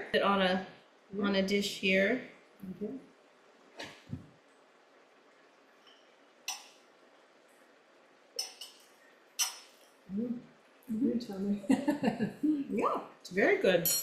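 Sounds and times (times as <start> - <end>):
cutlery clinking on plate: 8.4 - 10.0.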